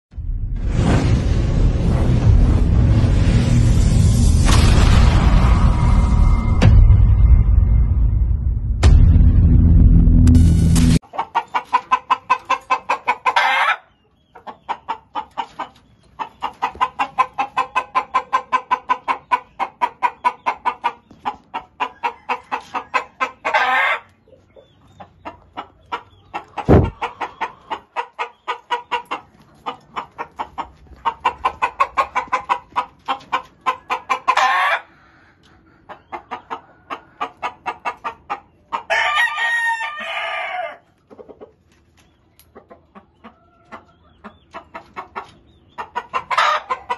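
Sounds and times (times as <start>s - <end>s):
loud thump: 4.4s - 11.0s, 26.7s - 27.0s
chickens clucking: 11.0s - 46.9s.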